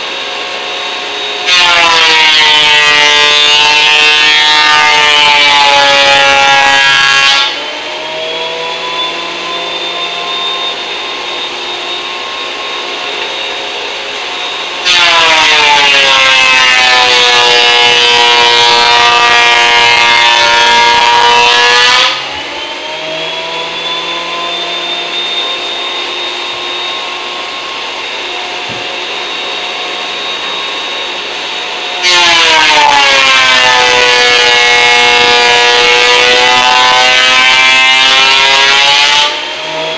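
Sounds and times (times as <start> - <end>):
thickness planer cutting wood: 0.0 - 39.9.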